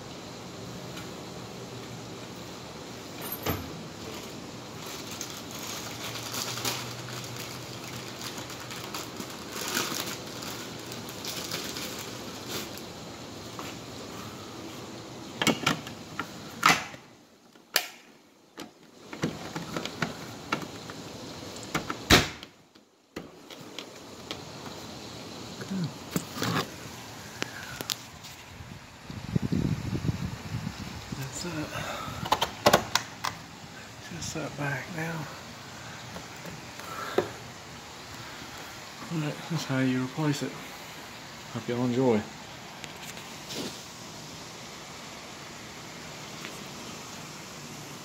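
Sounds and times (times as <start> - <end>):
rustling handling noise: 3.0 - 16.6, 18.6 - 22.1, 32.2 - 44.4.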